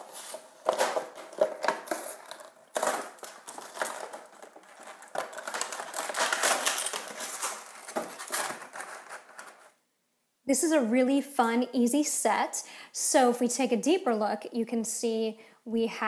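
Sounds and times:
plastic packaging crinkling: 0.0s - 9.8s.

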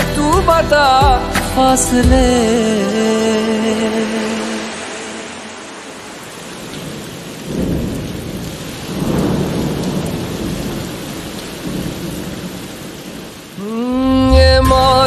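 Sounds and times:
steady rain: 2.2s - 15.0s
thunder rumbling: 3.4s - 15.0s.

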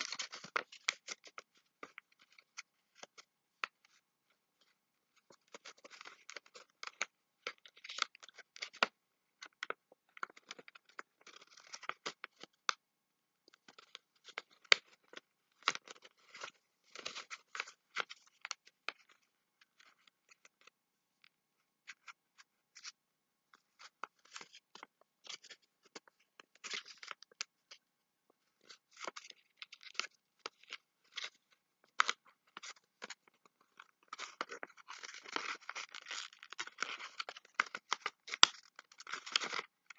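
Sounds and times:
paper crinkling and rustling: 0.0s - 4.0s, 28.6s - 39.9s.

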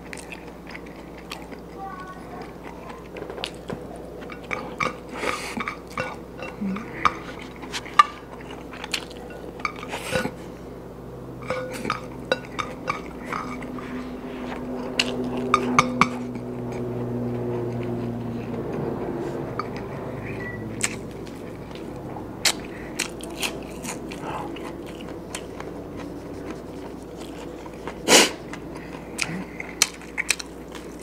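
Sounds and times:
chewing: 0.0s - 10.8s, 11.4s - 31.0s
low steady hum: 0.0s - 31.0s
food clinking on ceramic plates: 3.2s - 10.4s, 11.4s - 13.8s.

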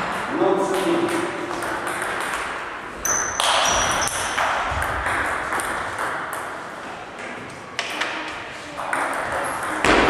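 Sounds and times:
high ringing tone: 3.0s - 4.3s.

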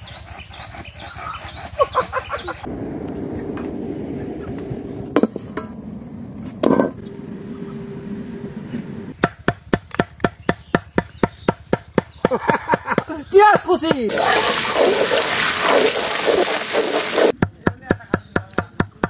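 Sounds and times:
low rumble with hum: 2.6s - 9.2s.

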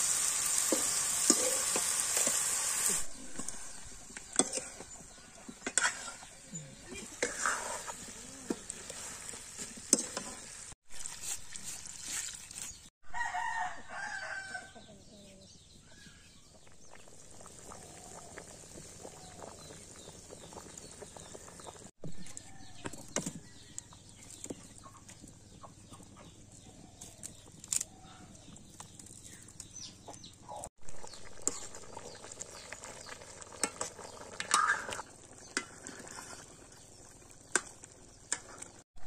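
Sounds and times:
metal ladle scraping in wok: 0.5s - 12.3s, 34.4s - 36.6s
rooster crowing: 13.0s - 14.8s.

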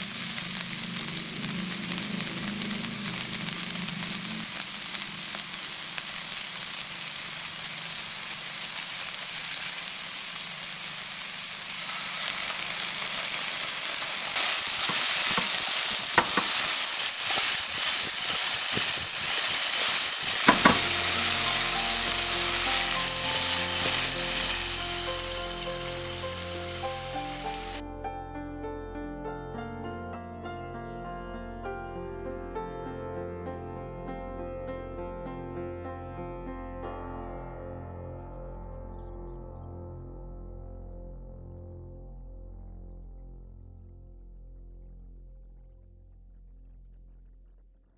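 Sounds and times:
vegetables sizzling in oil: 0.0s - 27.8s
spatula scraping wok: 10.8s - 27.8s
soft piano music: 20.4s - 44.8s.

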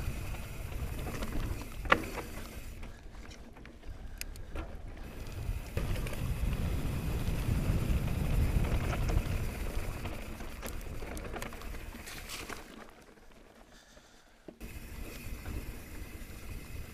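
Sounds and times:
bike knocking and rattling: 0.0s - 16.9s
tyres rumbling over dirt: 5.0s - 13.6s
wind rushing over microphone: 5.1s - 10.2s.

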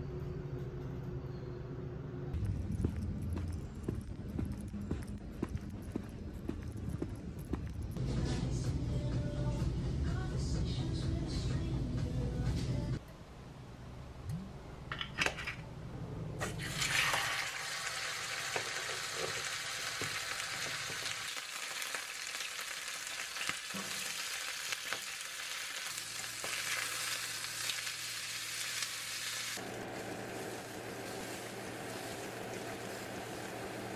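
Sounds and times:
steak sizzling in a frying pan: 16.6s - 33.9s.

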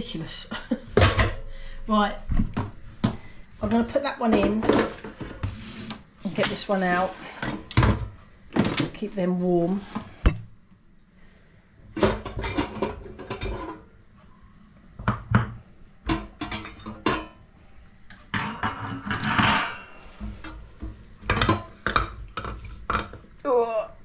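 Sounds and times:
metal scrape: 18.4s - 21.4s.

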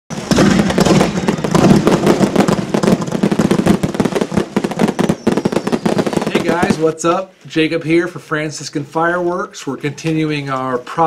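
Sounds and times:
fireworks bangs and crackling: 0.1s - 7.7s.

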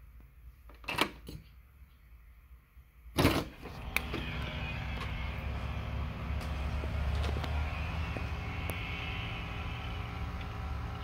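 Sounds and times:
outdoor hum: 0.0s - 11.0s
door opening: 3.2s - 8.4s.

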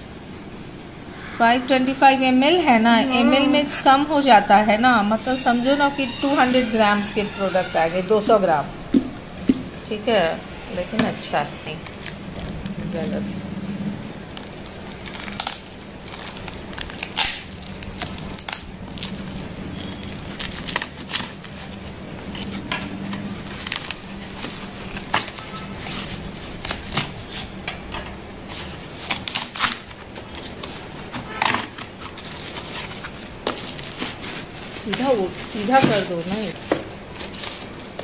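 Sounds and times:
tape ripping: 14.3s - 27.6s, 28.5s - 38.0s
knife slitting packing tape: 14.9s - 18.7s, 28.6s - 35.2s.

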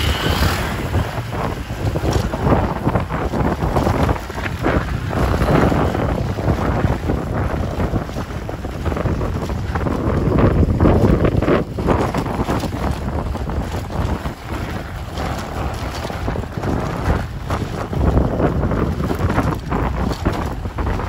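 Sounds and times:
motorbike engine: 0.0s - 21.0s
tyres rumbling over cobblestones: 0.0s - 21.0s
wind buffeting microphone: 0.0s - 21.0s.

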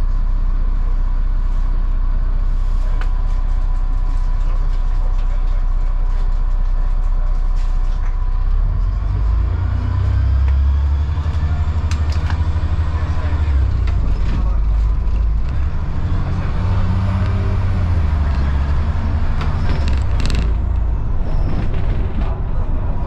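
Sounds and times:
bus engine running: 0.0s - 23.0s.

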